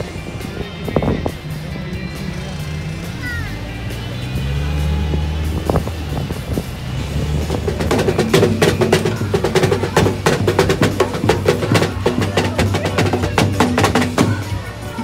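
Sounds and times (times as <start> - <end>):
steady low bass: 0.0 - 15.0
fast drum strikes: 7.2 - 15.0.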